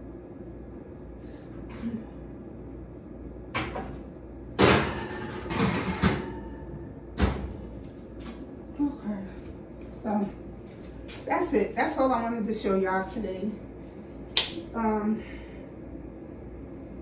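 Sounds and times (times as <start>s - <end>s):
metal baking pan clattering: 4.6s - 6.6s.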